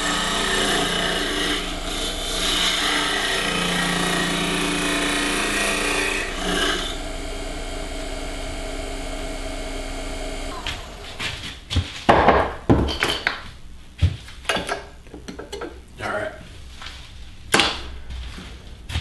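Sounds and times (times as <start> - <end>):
lathe running hum: 0.0 - 11.6
lathe tool scraping wood: 0.0 - 11.7.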